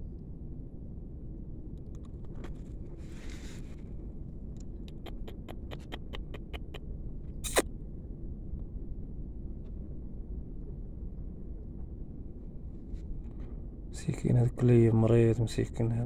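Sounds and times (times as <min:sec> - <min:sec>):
low steady rumble: 0:00.0 - 0:16.0
puppy eating wet clicks: 0:04.6 - 0:06.8.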